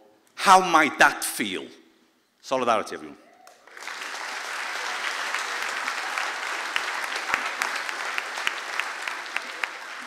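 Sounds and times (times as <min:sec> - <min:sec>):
audience applause: 0:03.5 - 0:10.0.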